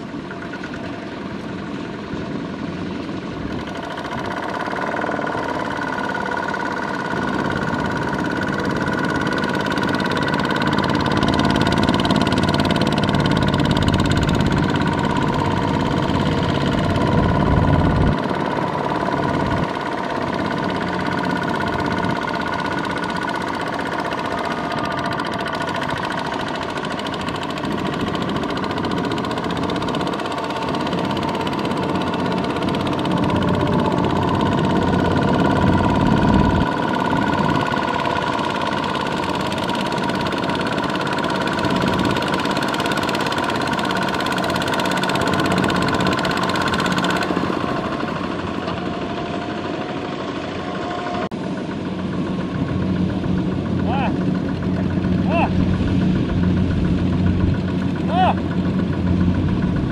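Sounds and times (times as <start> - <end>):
diesel tractor engine running: 0.0 - 59.9.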